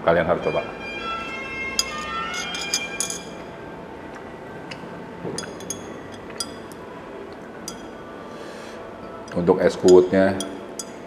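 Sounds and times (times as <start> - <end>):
background music: 0.0 - 3.8
spoon clinking against glass: 1.8 - 3.4, 5.4 - 6.6, 7.6 - 7.9, 9.2 - 11.0.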